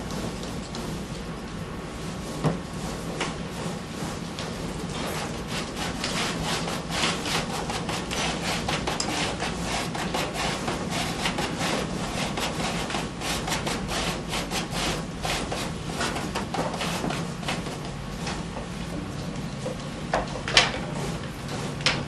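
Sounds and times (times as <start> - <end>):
paper rubbed by hand: 4.9 - 17.7.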